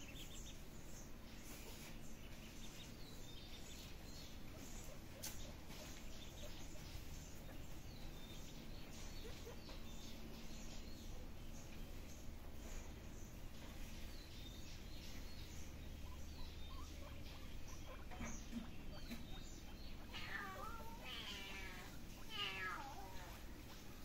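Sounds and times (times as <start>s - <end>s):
kitten meowing: 20.1s - 23.3s.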